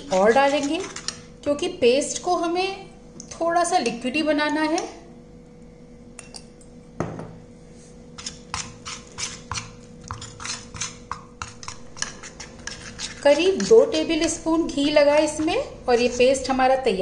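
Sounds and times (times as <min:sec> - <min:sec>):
metal spoon scraping steel bowl: 0:00.0 - 0:01.2, 0:08.2 - 0:16.9.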